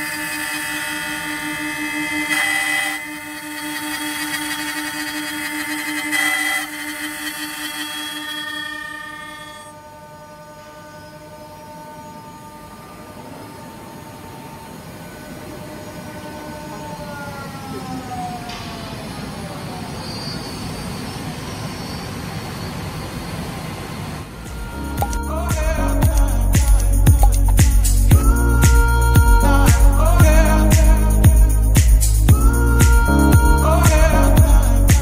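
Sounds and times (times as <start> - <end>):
spindle motors whining: 0.0 - 23.4.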